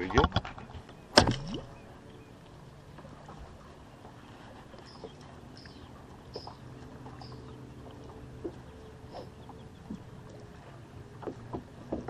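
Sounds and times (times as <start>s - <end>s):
trolling motor humming: 0.0s - 12.0s.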